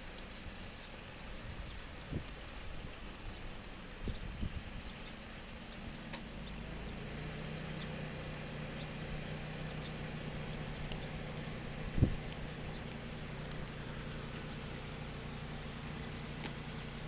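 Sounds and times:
engine drone: 0.0 - 17.0
low rumbling field ambience: 0.0 - 17.0.

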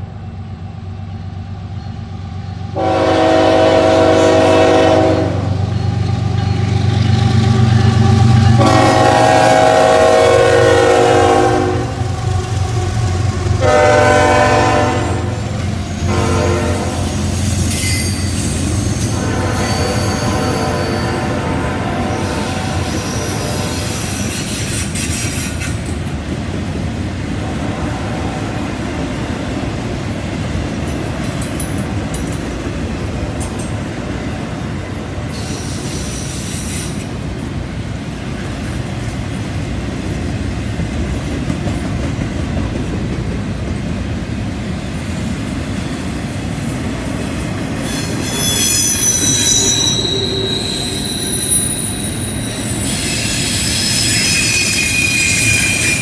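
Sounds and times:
freight train rumbling past: 0.0 - 56.0
wheel flanges squealing: 17.0 - 25.9, 45.1 - 56.0.

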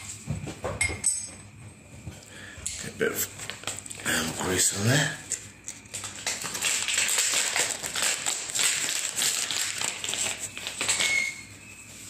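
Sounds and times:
plastic packaging crinkling: 3.2 - 12.0.

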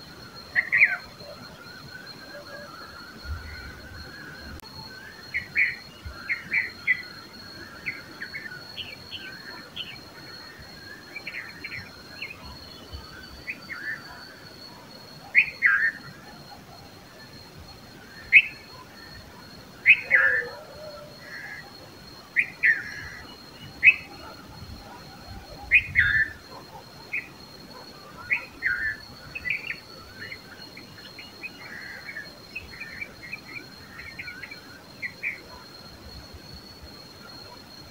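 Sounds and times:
bulbuls chirping: 0.0 - 35.8
faint high-pitched whine: 0.0 - 37.9.

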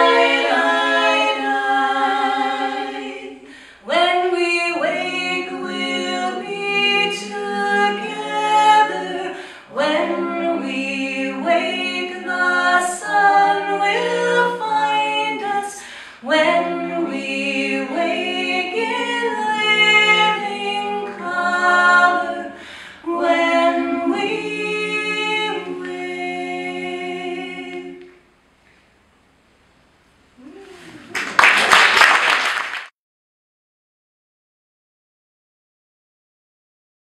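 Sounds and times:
women singing a cappella harmony: 0.0 - 28.2.

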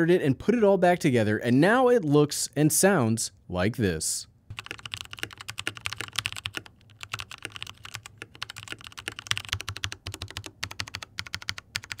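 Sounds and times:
mechanical keyboard typing: 4.5 - 12.0.

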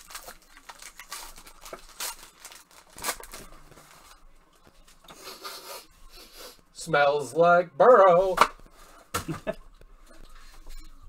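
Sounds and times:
plastic foil crinkling: 0.0 - 5.0.

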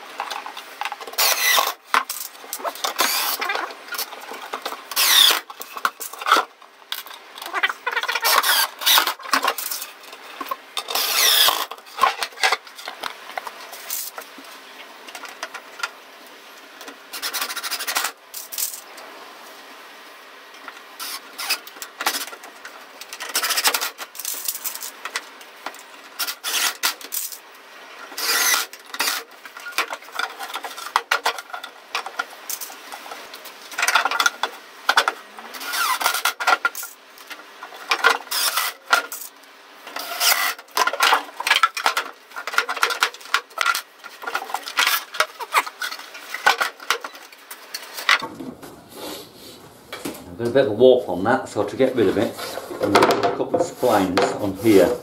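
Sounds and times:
drill driving screws into wood: 1.1 - 3.5, 4.9 - 5.5, 8.1 - 9.7, 10.8 - 11.7, 21.0 - 22.2, 26.2 - 27.3, 28.2 - 29.3, 35.6 - 36.4, 38.2 - 39.3, 40.0 - 40.6.

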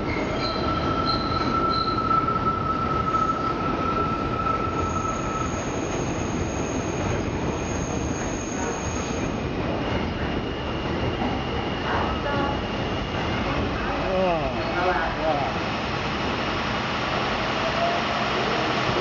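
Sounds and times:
train wheels squealing on rail: 0.0 - 13.9
train rumble: 0.0 - 19.0.

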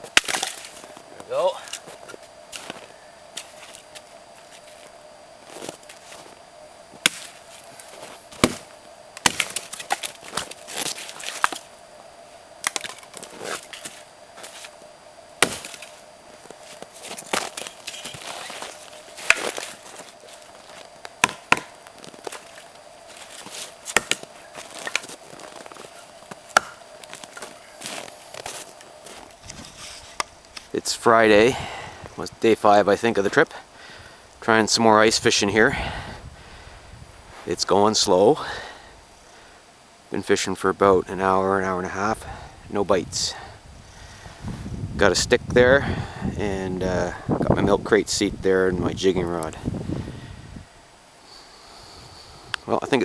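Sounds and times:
axe chopping wood: 0.1 - 0.7, 7.0 - 7.4, 8.4 - 10.1, 15.4 - 15.9, 21.2 - 21.8, 23.9 - 25.0, 26.5 - 26.8.

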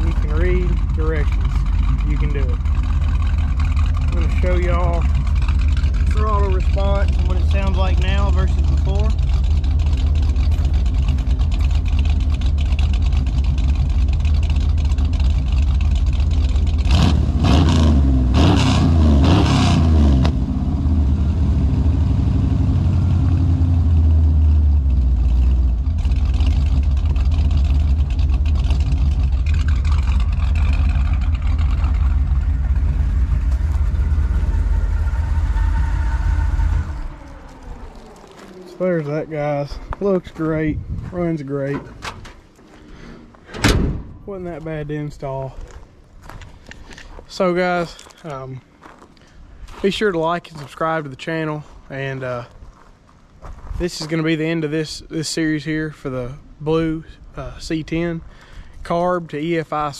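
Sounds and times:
truck engine idling: 0.0 - 17.4, 20.4 - 53.2
engine revving: 0.0 - 40.5.

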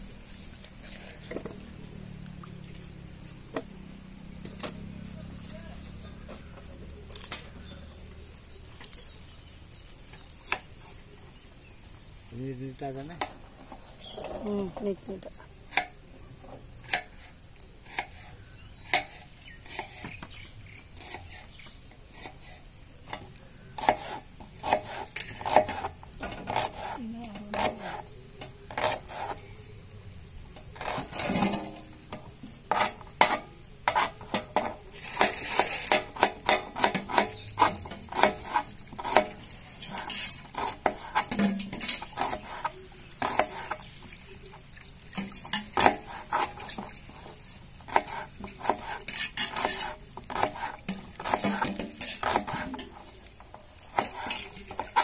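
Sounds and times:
knife slicing onion on cutting board: 23.8 - 28.1, 28.7 - 29.4, 32.7 - 43.8, 45.8 - 47.3, 47.9 - 53.0, 53.8 - 55.0.

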